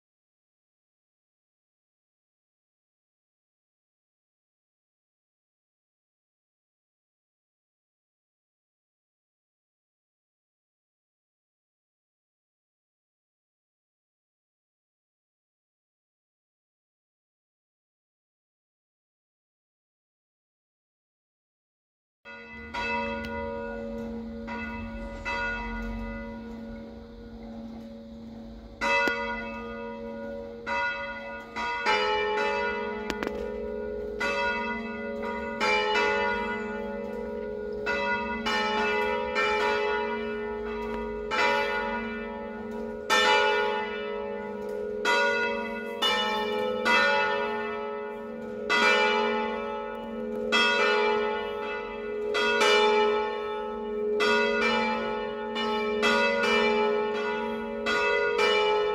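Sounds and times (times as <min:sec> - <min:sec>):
church bells ringing: 0:22.3 - 0:58.9.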